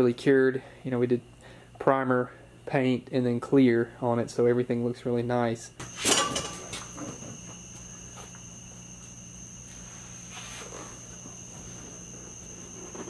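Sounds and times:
high-pitched whine: 5.8 - 13.0
low hum: 5.8 - 13.0.

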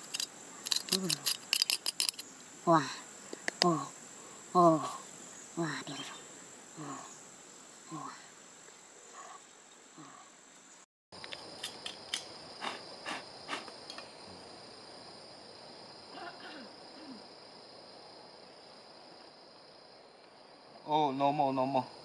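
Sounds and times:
hands handling metal object and soil: 0.0 - 2.3
insects calling: 0.0 - 22.0.

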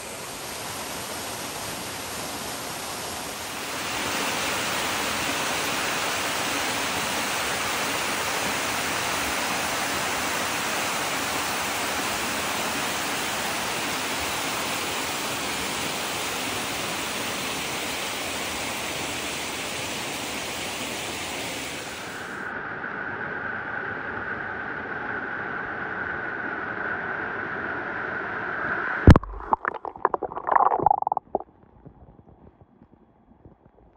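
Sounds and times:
waterfall splashing into pool: 29.1 - 31.4.

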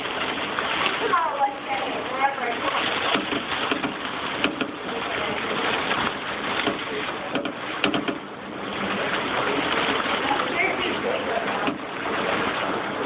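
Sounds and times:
waves breaking over dock: 0.0 - 13.0
sharp knocks: 3.1 - 4.8, 6.6 - 8.3.

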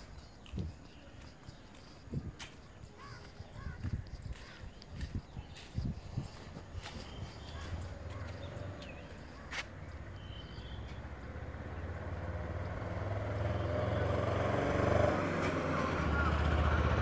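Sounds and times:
small truck approaching: 5.8 - 17.0.

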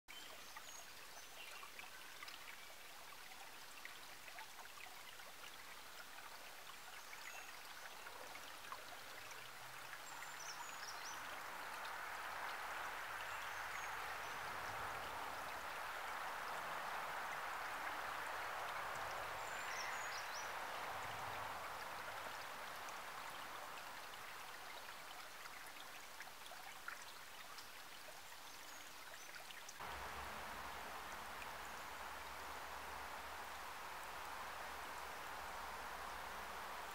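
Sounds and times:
stream trickling over rocks: 0.1 - 36.9
fast water rushing with rumble: 7.3 - 27.3, 29.7 - 36.9
distant road traffic: 9.6 - 24.5, 29.8 - 36.9.

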